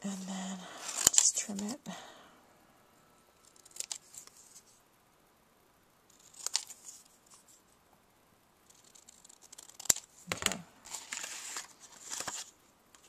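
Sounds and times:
paper rustling: 0.8s - 1.7s, 6.1s - 7.6s, 8.7s - 13.0s.

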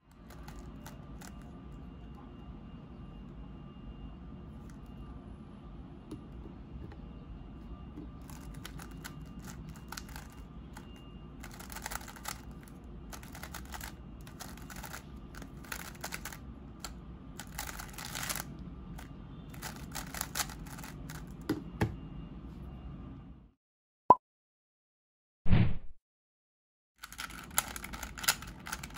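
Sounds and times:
puzzle cube layers clicking: 11.4s - 16.4s, 17.4s - 18.4s.

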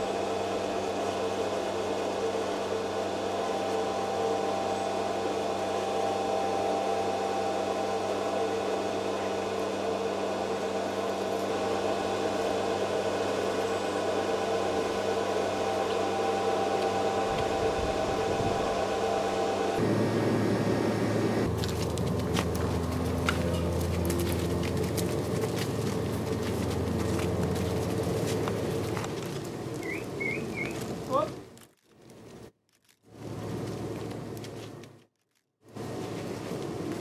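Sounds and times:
steady mechanical hum: 0.0s - 32.5s, 33.1s - 35.0s, 35.7s - 37.0s.

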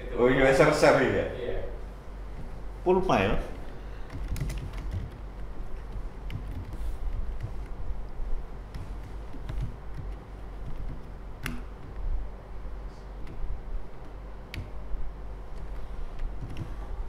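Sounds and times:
keyboard typing: 3.6s - 12.1s, 15.5s - 17.0s.

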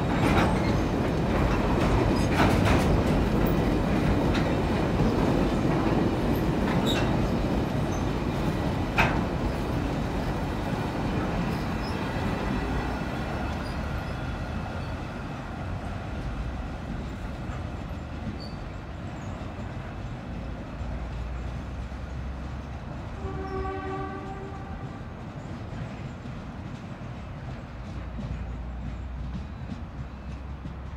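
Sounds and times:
train wagons rumbling on rails: 0.0s - 30.9s
train horn: 23.1s - 25.2s.

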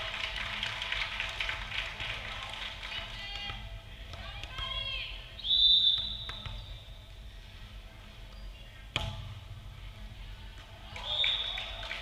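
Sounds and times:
gym hum and murmur: 0.0s - 12.0s
referee's whistle blast: 5.4s - 6.9s
volleyball struck: 5.9s - 6.8s, 8.9s - 9.6s.

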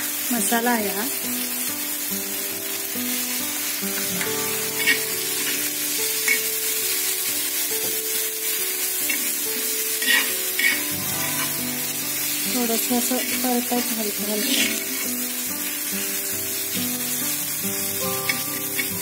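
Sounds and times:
food sizzling in oil: 0.0s - 19.0s
soft background music: 0.2s - 19.0s
metal spatula scraping pan: 4.2s - 6.5s, 9.1s - 11.7s.

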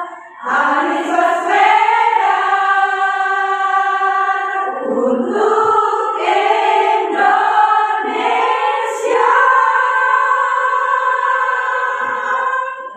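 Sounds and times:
women's choir singing: 0.0s - 12.9s.

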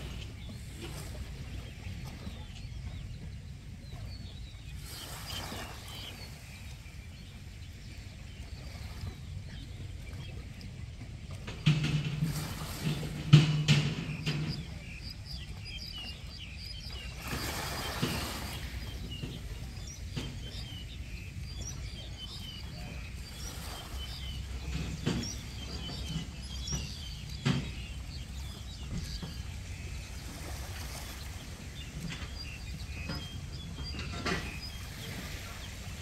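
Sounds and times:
small birds chirping: 0.0s - 11.7s, 12.4s - 36.0s
sharp knocks: 11.6s - 14.9s.

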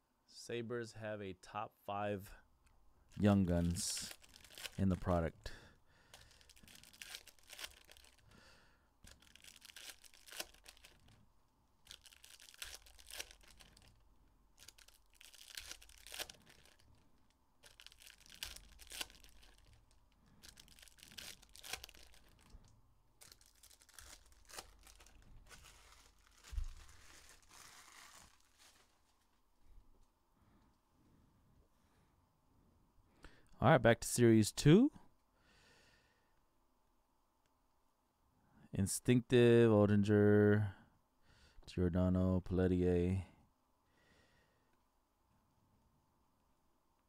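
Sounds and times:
foil wrappers crinkling: 3.1s - 8.4s, 9.0s - 11.2s, 11.8s - 29.4s.

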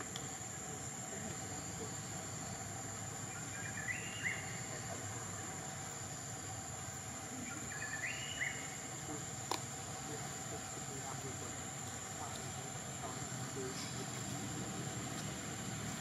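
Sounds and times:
steady hiss: 0.0s - 16.0s
bird chirping call: 3.2s - 5.5s, 7.4s - 8.9s.

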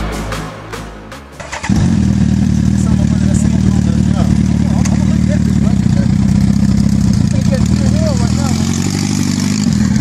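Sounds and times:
electronic music: 0.0s - 2.7s
motorcycle engine running: 1.4s - 10.0s.

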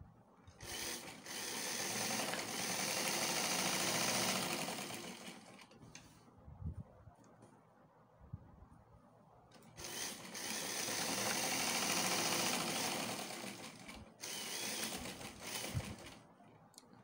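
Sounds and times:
electric sewing machine stitching: 0.6s - 5.7s, 9.7s - 16.2s.

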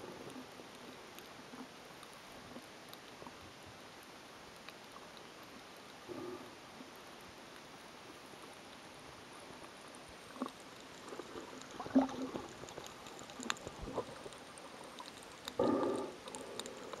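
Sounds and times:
faint underwater hiss: 0.0s - 17.0s
sharp underwater clicks: 9.9s - 17.0s.

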